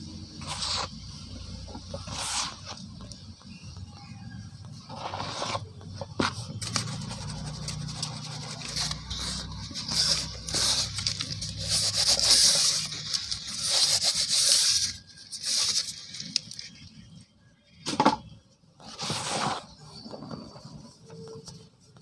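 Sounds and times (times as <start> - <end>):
cement powder pouring gritty hiss: 0.3 - 2.8, 8.5 - 15.9.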